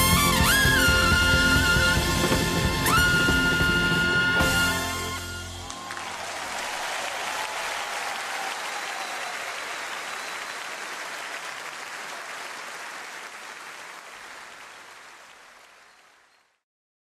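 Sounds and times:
audience applauding: 0:00.0 - 0:16.6.

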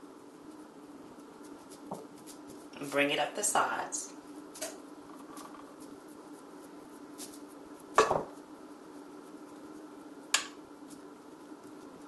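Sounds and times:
knocks on glass baking dish: 0:08.0 - 0:08.3.

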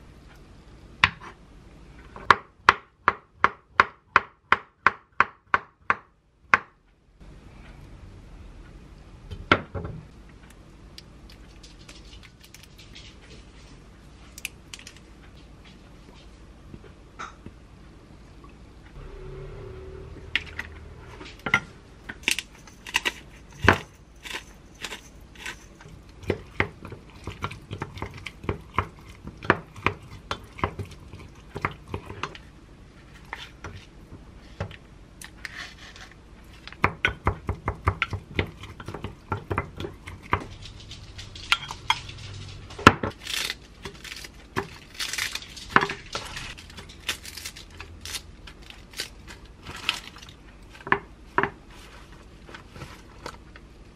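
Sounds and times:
lettuce leaves rustling and tearing: 0:43.1 - 0:50.4.

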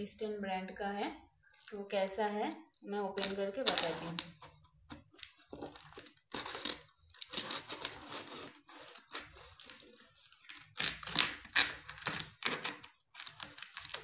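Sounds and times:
knife blade slitting packing tape: 0:05.6 - 0:14.0.

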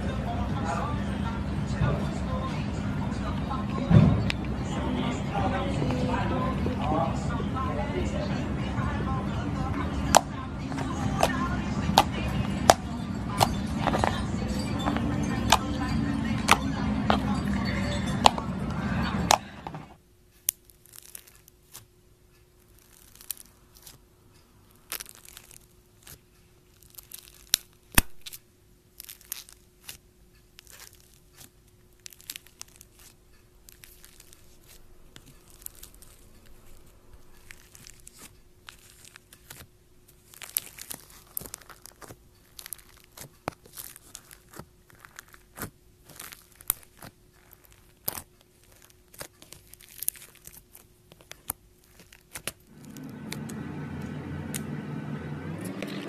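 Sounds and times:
faint steady hum: 0:00.0 - 0:56.0
slime crackling and popping: 0:20.4 - 0:54.7.

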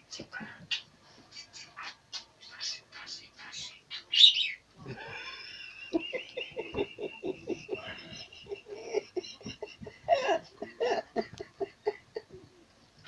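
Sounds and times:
chuckling laughter: 0:04.8 - 0:12.6.

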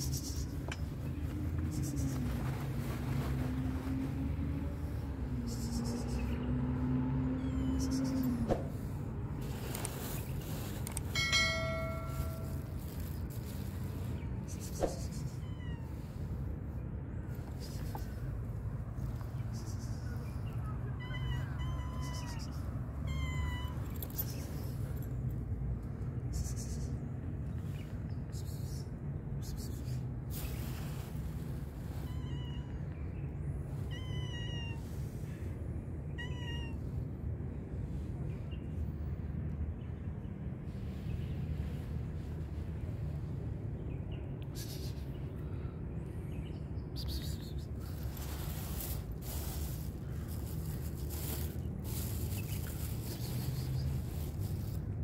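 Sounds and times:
cat meowing: 0:15.3 - 0:16.1, 0:20.8 - 0:24.0, 0:32.0 - 0:33.0, 0:33.8 - 0:34.9, 0:36.2 - 0:36.9.

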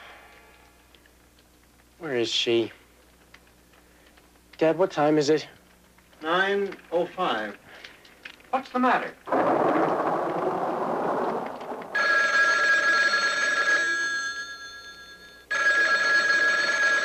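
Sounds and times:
telephone bell ringing: 0:12.0 - 0:17.0.

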